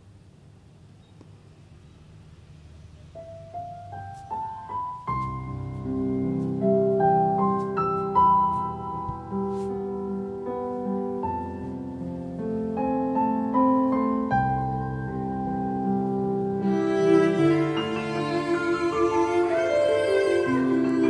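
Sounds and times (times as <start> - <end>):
piano music over loudspeakers: 3.0 - 21.0.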